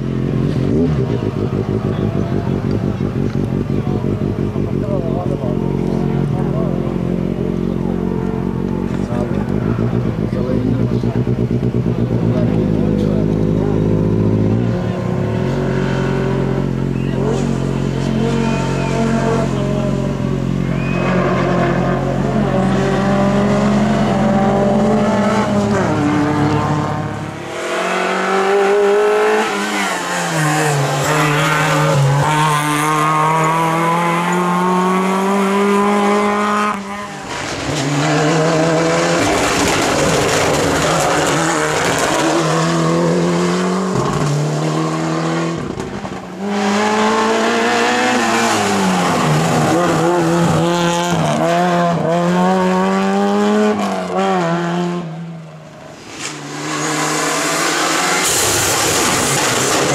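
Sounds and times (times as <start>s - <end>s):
rally car engines revving: 0.0s - 59.9s
tyre squeal: 20.6s - 21.6s.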